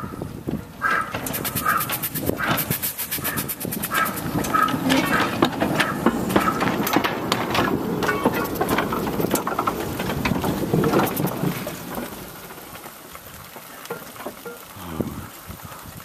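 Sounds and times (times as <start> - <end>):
steam locomotive clattering: 0.0 - 14.8.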